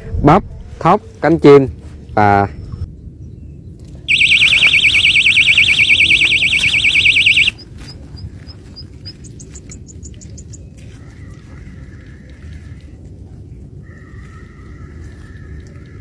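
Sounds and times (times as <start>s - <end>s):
bite alarm warbling tone: 4.1s - 7.6s
short high beeps: 4.1s - 7.6s.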